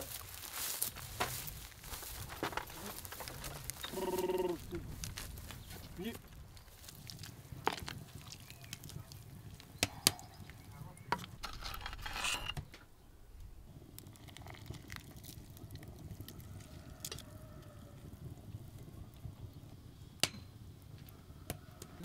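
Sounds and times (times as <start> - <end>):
spoon scraping pot: 11.4 - 12.6.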